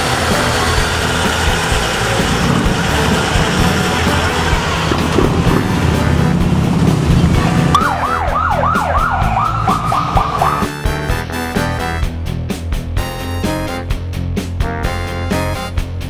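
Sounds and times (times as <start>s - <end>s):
music: 0.0s - 16.0s
street noise: 0.0s - 16.0s
truck engine running: 0.0s - 16.0s
siren yelping: 7.7s - 10.9s.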